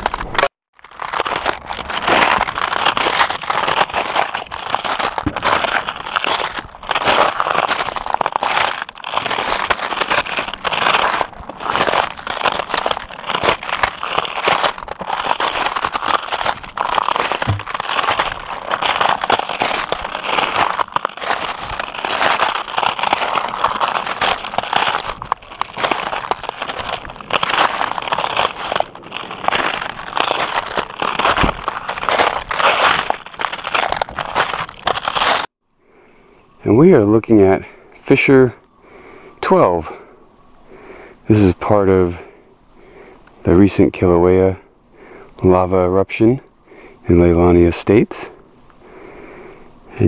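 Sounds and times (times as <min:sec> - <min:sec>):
footsteps crunching on rock: 0:00.0 - 0:35.5.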